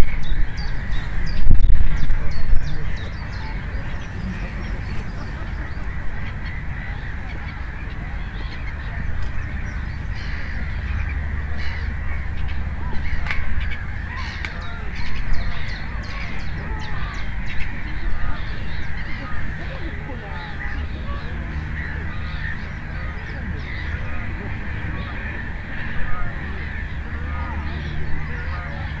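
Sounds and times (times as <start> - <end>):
birds calling: 0.0 - 29.0
low rumble: 0.1 - 28.9.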